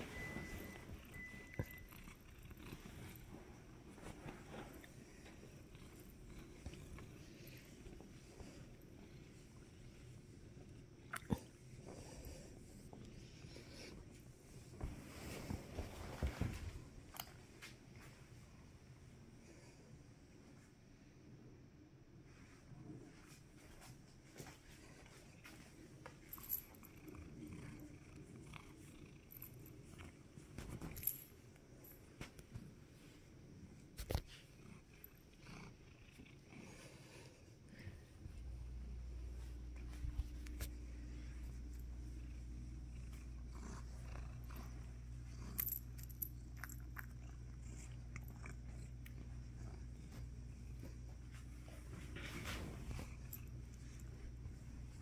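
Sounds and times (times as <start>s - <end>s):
cat purring: 0.0s - 16.4s, 25.3s - 31.2s, 33.0s - 55.0s.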